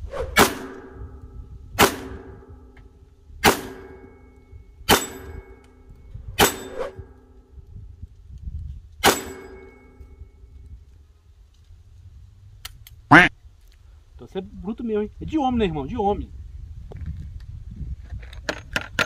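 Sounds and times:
revolver shots: 0:00.2 - 0:01.1
steel plate target ringing: 0:00.4 - 0:07.6, 0:09.0 - 0:10.5.

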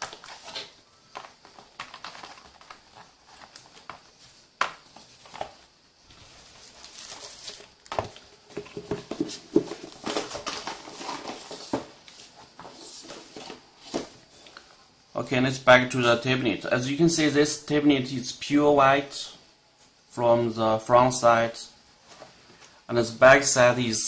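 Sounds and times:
wrapping sheet rustling: 0:05.0 - 0:08.2.

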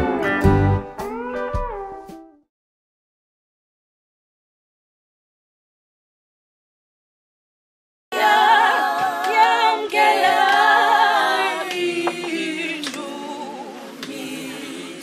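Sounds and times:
a cappella voices singing in harmony: 0:08.1 - 0:15.0.

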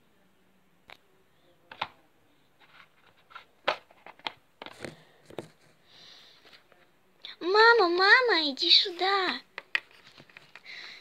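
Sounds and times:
plastic toy taps and clicks: 0:09.3 - 0:10.6.

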